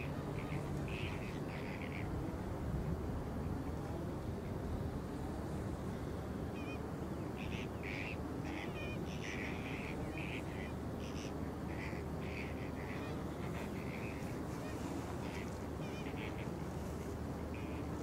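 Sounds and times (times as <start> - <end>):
flamingos honking: 0.0 - 2.1, 7.4 - 18.0.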